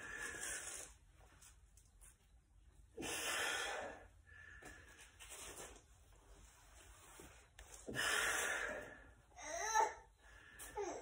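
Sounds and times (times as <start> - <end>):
man breathing forcefully: 3.0 - 4.9, 7.8 - 9.3.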